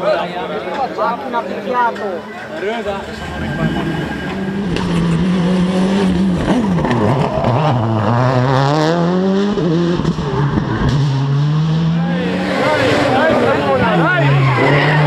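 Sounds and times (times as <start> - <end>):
rally car engine revving hard: 3.0 - 15.0.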